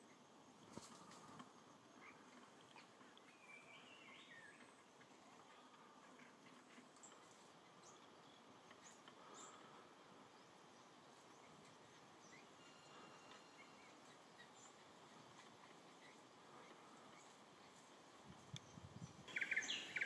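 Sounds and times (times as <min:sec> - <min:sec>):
insect calls: 0:00.0 - 0:20.0
low steady hiss: 0:00.0 - 0:20.0
bird chirps: 0:02.0 - 0:04.9, 0:11.2 - 0:17.4, 0:18.5 - 0:20.0.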